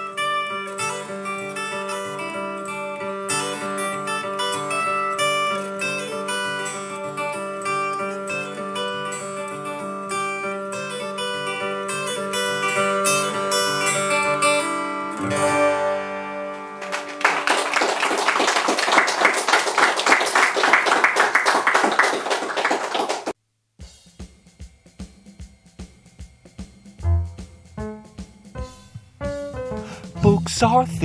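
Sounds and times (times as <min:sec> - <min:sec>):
acoustic guitar: 0:00.0 - 0:17.4, 0:28.9 - 0:31.0.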